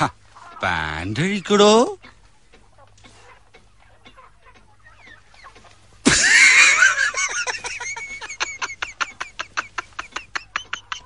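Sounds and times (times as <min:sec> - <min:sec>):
person laughing: 0:06.0 - 0:11.0.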